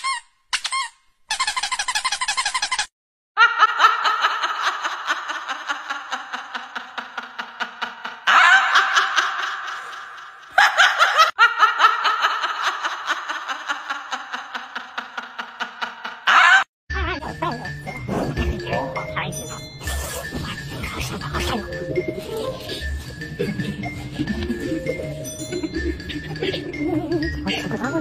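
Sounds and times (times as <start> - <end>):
short squeaky sound: 0.0 - 2.9
person laughing hard: 3.4 - 16.7, 20.9 - 28.0.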